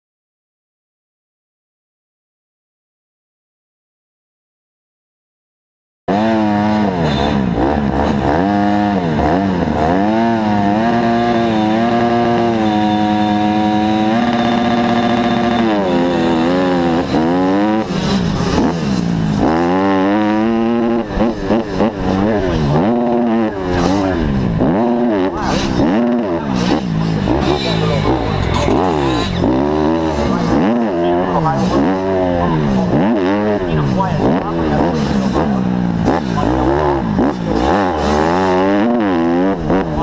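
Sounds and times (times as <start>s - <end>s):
motocross bike engine revving: 6.1s - 40.0s.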